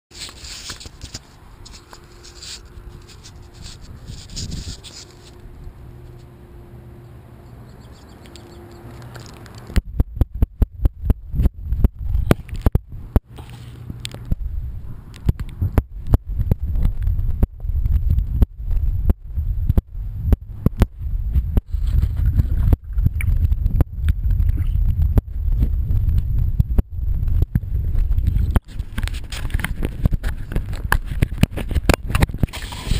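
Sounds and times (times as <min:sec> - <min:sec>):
phone rustling against grass: 0:00.1 - 0:06.4, 0:13.3 - 0:15.2, 0:21.4 - 0:23.4, 0:27.9 - 0:32.9
low steady rumble: 0:00.3 - 0:32.9
small clicks: 0:07.9 - 0:09.8.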